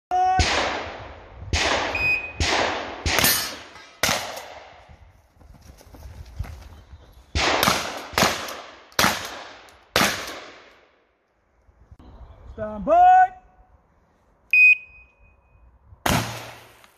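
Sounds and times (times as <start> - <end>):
shotgun shots with echo: 0.4 - 4.8, 7.4 - 10.7, 16.0 - 16.8.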